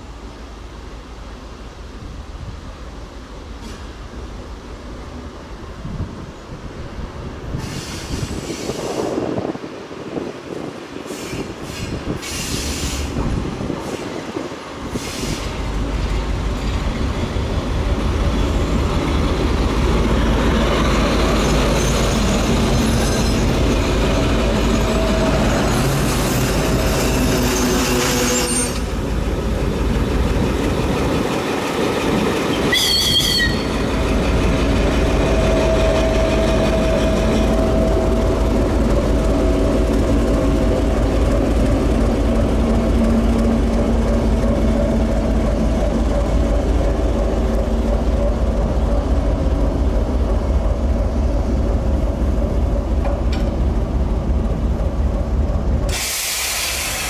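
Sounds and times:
diesel locomotive engine rumble: 0.0 - 57.0
train wheels squealing on rails: 7.5 - 9.5, 11.0 - 17.3, 18.4 - 29.1, 31.6 - 39.8, 55.8 - 57.0.

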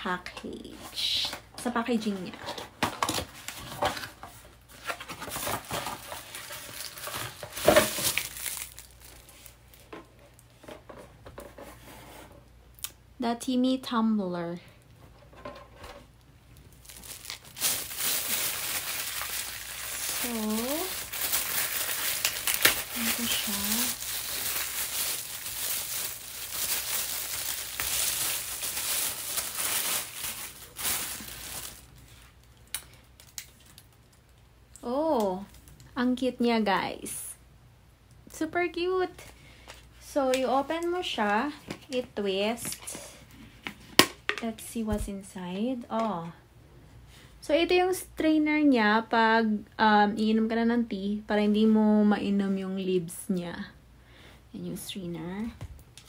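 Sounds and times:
plastic wrapping crinkling: 2.8 - 10.6, 16.6 - 35.8.

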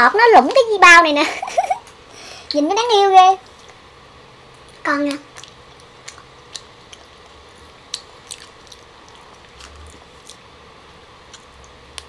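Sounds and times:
chewing a grape: 4.5 - 10.5, 11.2 - 12.0.

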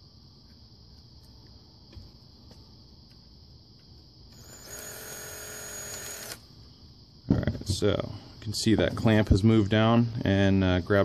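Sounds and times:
power drill running: 4.3 - 6.4.

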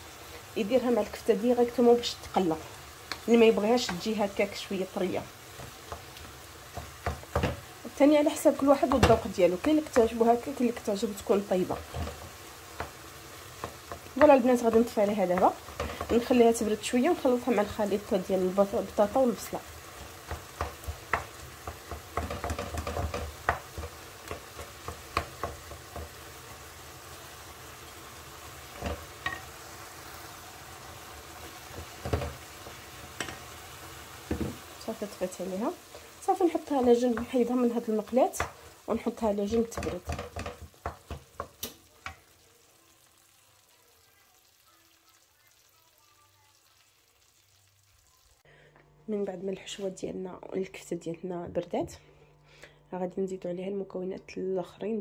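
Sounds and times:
faint sizzle: 0.0 - 55.0
wooden spoon scraping a pan: 11.0 - 26.6.

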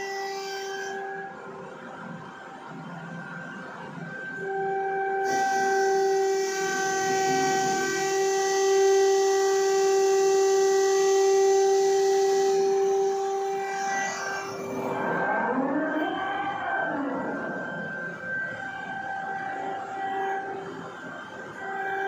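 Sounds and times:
hydraulic pump whining: 5.2 - 22.0.

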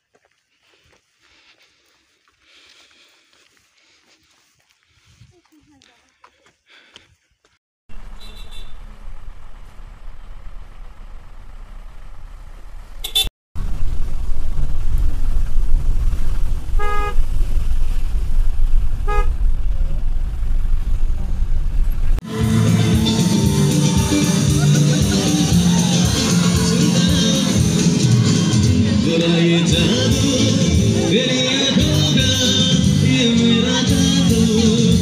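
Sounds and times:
traffic rumble: 0.0 - 7.1, 7.9 - 35.0
vehicle horns honking: 7.9 - 9.0, 13.0 - 13.3, 16.8 - 17.3, 19.0 - 19.4.

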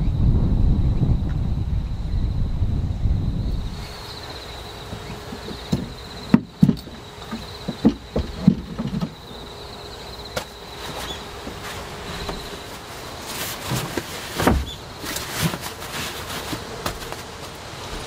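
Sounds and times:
insect trilling: 1.8 - 13.3.

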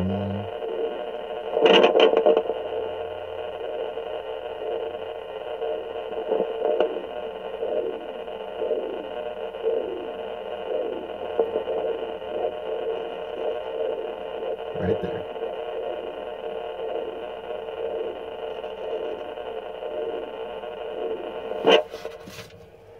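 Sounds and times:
heartbeat whooshing pulses: 2.4 - 22.5
loud scraping rustle: 21.7 - 22.7.

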